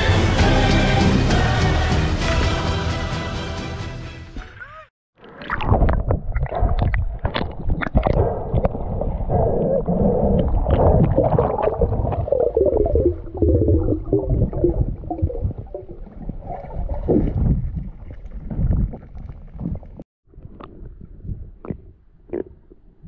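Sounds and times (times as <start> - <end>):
muffled underwater water rushing: 5.2 - 21.8.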